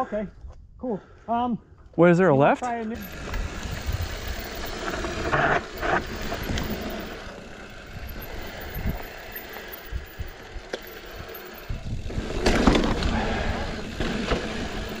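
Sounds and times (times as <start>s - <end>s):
bike clicking over bumps: 2.9s - 15.0s
bike tyre rumble: 3.0s - 15.0s
wind buffeting microphone: 3.0s - 15.0s.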